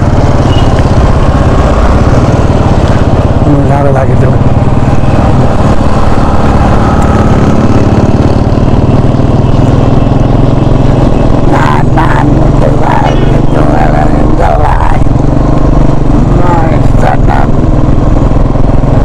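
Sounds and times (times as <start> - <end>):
motorcycle engine running: 0.0 - 19.0
voices talking: 11.3 - 15.1, 16.2 - 17.5.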